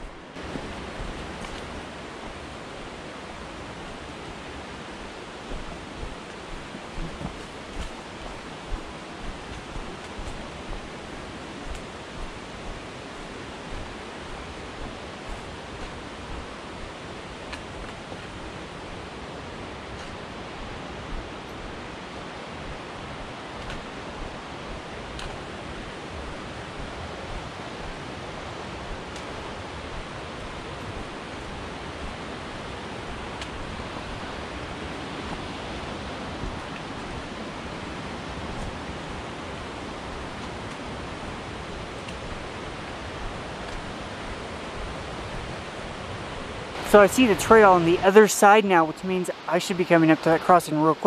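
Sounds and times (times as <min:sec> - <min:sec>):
mountain creek rushing: 0:00.0 - 0:51.0.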